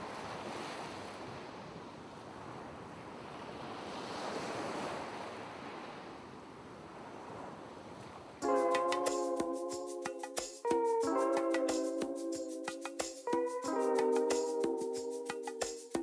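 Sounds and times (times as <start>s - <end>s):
waves breaking: 0.0s - 10.6s.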